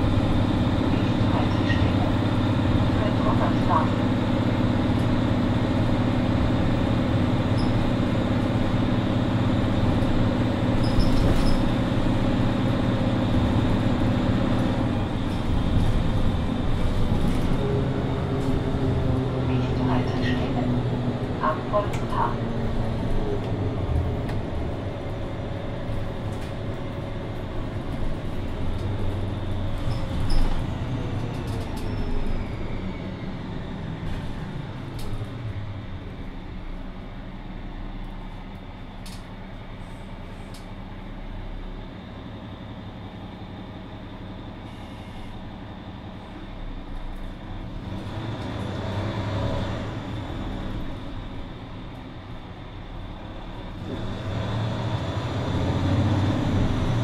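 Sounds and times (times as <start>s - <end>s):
bus engine whining: 0.0s - 57.0s.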